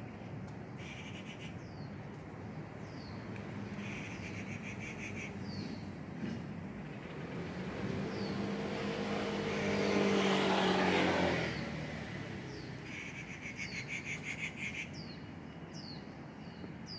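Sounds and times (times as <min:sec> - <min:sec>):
vehicle passing: 0:05.5 - 0:13.3.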